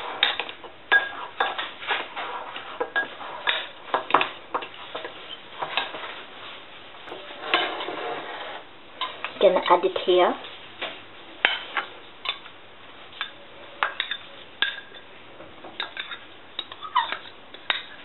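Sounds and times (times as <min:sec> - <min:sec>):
spoon clinking and scraping glass bowl: 0:15.8 - 0:18.0.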